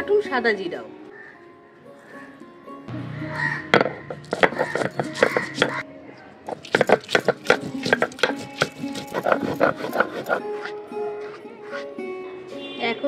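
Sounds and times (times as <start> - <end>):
stone roller knocking and crushing: 3.8 - 5.8, 6.5 - 10.4.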